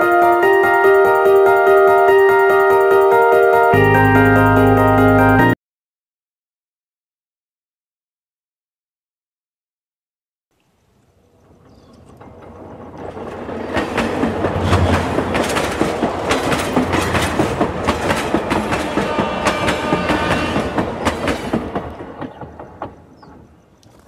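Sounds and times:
train passing: 0.0 - 5.6, 11.1 - 24.0
wheel clacks over rail joints: 11.3 - 24.0.

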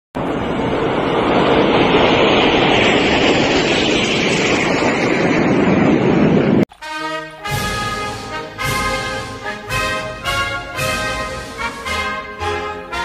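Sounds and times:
military jets passing overhead: 0.2 - 6.7.

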